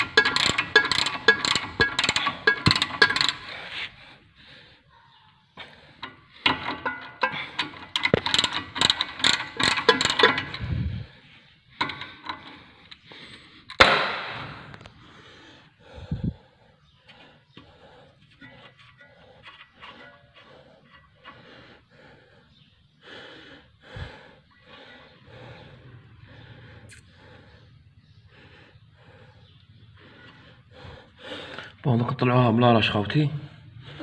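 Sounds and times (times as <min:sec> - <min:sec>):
ratchet wrench clicking: 0:00.0 - 0:03.6, 0:06.4 - 0:10.8.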